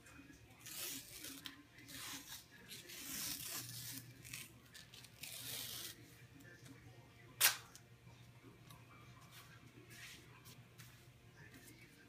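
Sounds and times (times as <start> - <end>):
athletic tape ripping: 0.6 - 6.0, 7.4 - 7.7.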